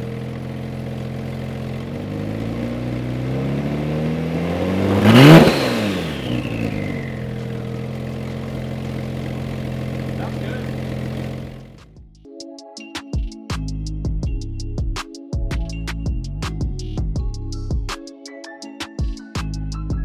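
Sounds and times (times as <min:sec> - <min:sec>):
car engine idling and revving: 0:00.0 - 0:12.1.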